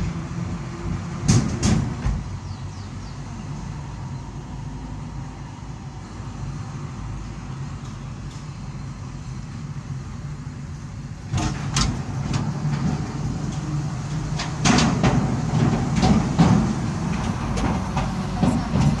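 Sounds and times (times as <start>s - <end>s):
car road noise: 0.0s - 19.0s
metallic clanks from bridge: 11.3s - 19.0s.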